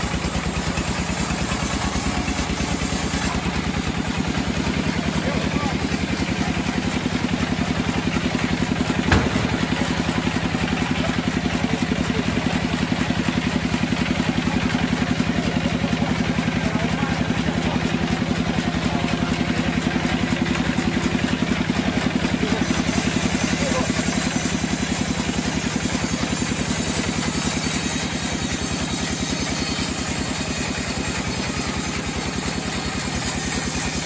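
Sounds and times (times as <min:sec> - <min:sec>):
band sawmill cutting log: 0:00.0 - 0:34.0
sharp knock: 0:09.0 - 0:09.9.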